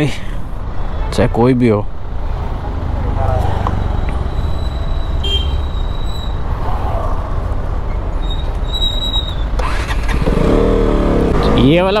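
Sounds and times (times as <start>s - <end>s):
city road traffic: 0.0s - 12.0s.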